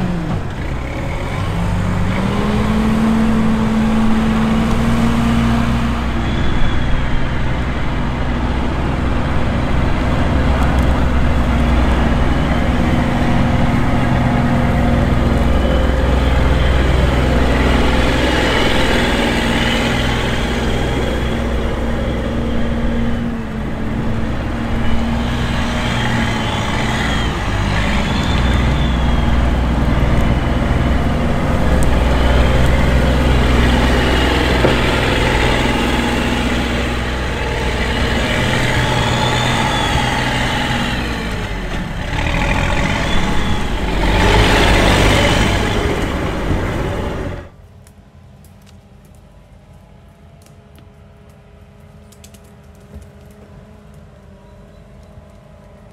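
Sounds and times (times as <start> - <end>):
diesel engine running: 0.0 - 47.6.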